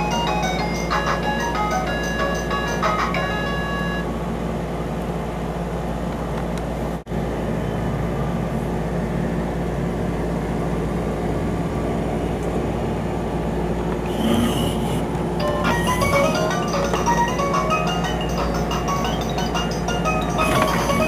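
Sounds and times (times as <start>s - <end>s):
small electric motor whirring: 14.1s - 15.1s.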